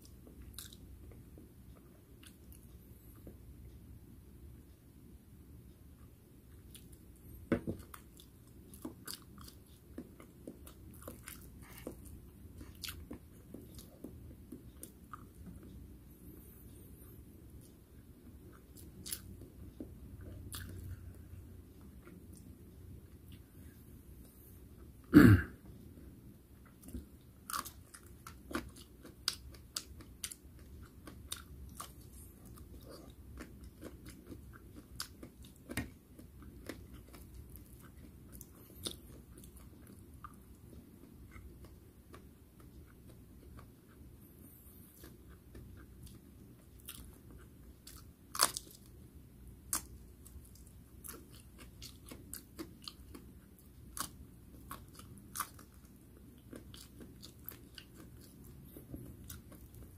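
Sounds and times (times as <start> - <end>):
person chewing crunchy food: 0.0 - 2.8, 7.6 - 15.8, 18.4 - 22.5, 26.6 - 49.0, 49.6 - 59.9.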